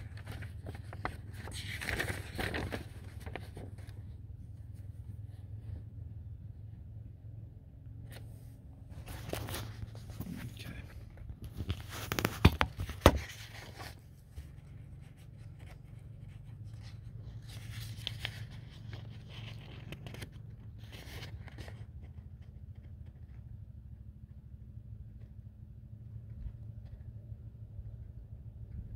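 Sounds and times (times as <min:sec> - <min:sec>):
steady low hum: 0:00.0 - 0:28.9
camera handling rustling: 0:08.9 - 0:10.4, 0:11.2 - 0:14.0.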